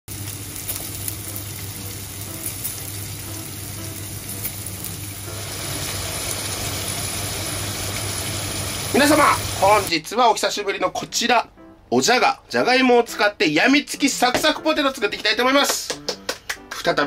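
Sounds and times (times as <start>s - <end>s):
potato slices sizzling in oil: 0.1s - 10.0s.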